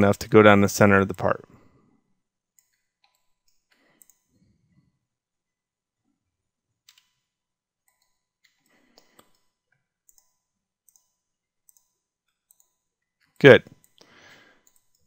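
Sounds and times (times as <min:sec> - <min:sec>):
computer mouse and keyboard clicks: 0:02.6 - 0:04.3, 0:06.8 - 0:15.0.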